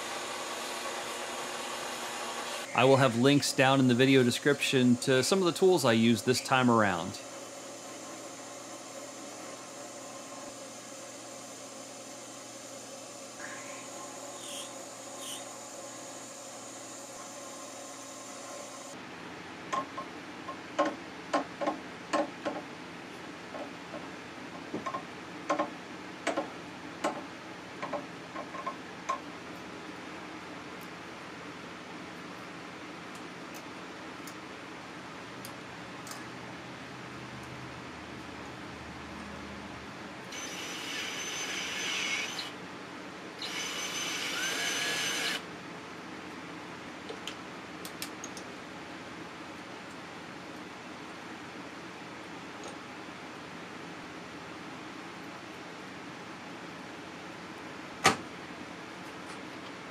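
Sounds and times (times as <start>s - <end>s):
milling machine drilling metal: 40.3s - 42.5s, 43.4s - 45.4s.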